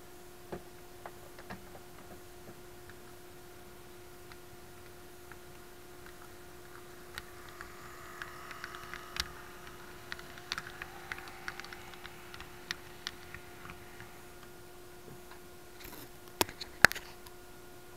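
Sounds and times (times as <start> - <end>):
faint steady hum: 0.0 - 17.9
model train wheels clicking: 6.0 - 14.6.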